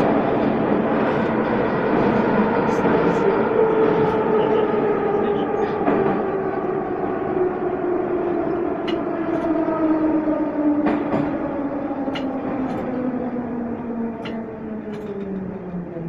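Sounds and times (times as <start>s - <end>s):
train running noise: 0.0s - 16.0s.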